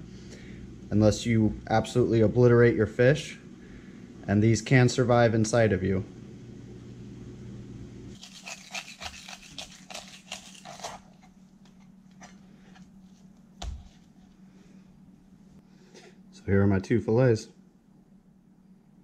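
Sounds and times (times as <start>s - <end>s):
low hum: 0.0s - 19.0s
knife cutting and scraping fish: 8.2s - 14.3s.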